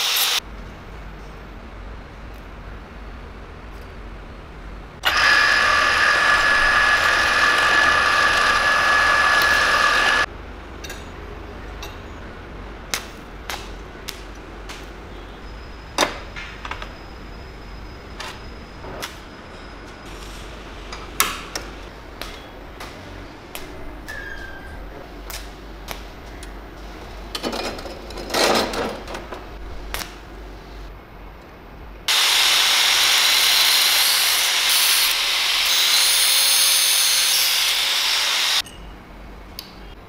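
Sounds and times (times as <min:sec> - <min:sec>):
small power tool whining: 0:05.0 - 0:10.3, 0:32.1 - 0:38.6.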